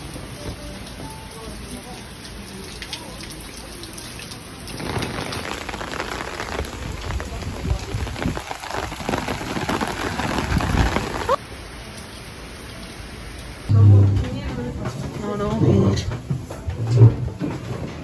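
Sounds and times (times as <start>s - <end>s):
heavy rain on an umbrella: 0.0s - 13.7s.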